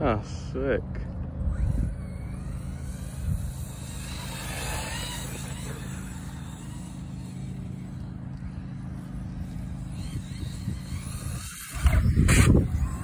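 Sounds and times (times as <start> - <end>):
radio-controlled car driving: 0.0 - 13.0
steady low rumble: 0.0 - 13.0.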